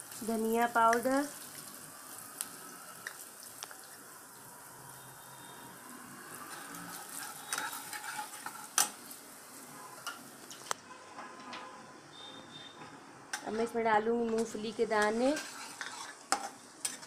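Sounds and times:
spices sizzling in oil: 0.0s - 10.8s, 13.3s - 17.0s
metal spatula scraping pan: 6.2s - 11.8s, 13.4s - 17.0s.

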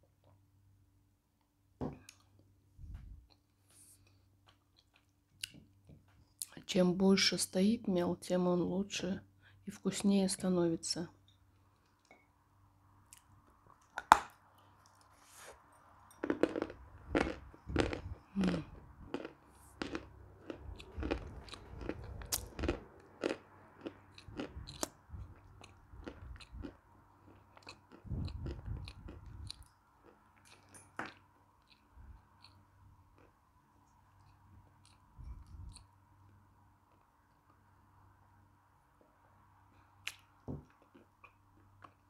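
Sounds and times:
chewing chalk crunches: 16.1s - 33.4s.

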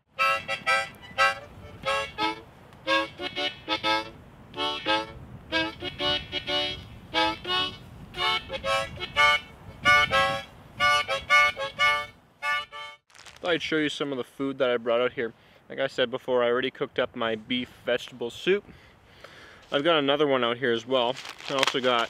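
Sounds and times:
melody of short pitched notes: 0.2s - 13.0s.

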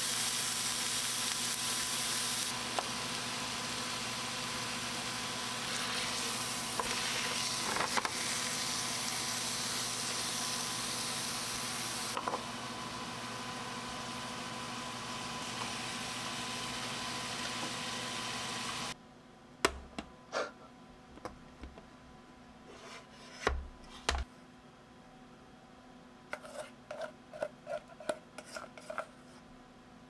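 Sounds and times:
steak sizzling in a frying pan: 0.0s - 19.0s.

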